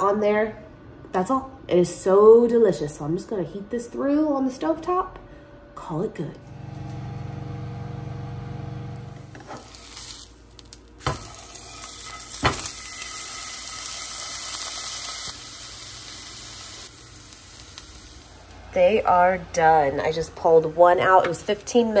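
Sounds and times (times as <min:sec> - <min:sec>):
steam oven humming: 0:05.4 - 0:22.0
burger patty sizzling in frying pan: 0:09.0 - 0:18.7.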